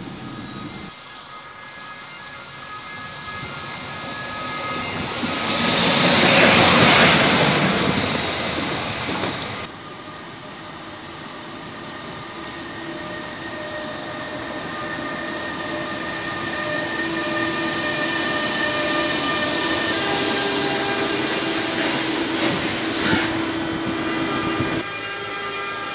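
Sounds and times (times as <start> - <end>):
train rumble: 0.0 - 1.0
locomotive whine: 0.0 - 25.9.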